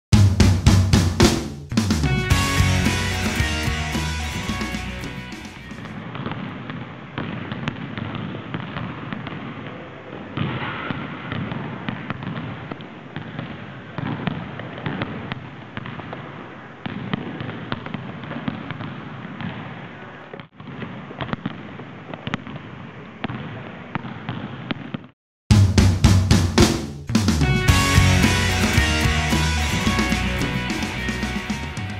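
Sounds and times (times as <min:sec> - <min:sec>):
basketballs bouncing on gym floor: 0:06.2 - 0:09.7, 0:16.8 - 0:19.8, 0:23.3 - 0:25.1.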